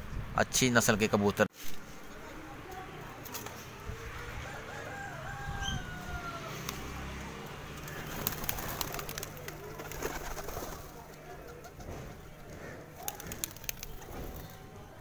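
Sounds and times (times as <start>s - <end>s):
pigeons cooing: 7.7s - 14.7s.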